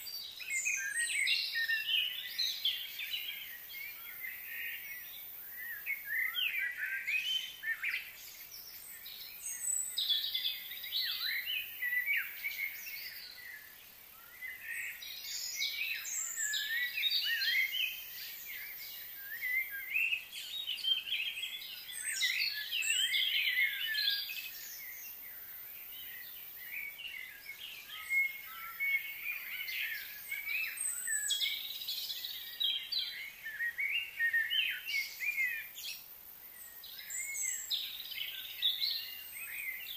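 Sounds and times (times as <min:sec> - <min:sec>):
small birds chirping: 0:00.0 - 0:39.9.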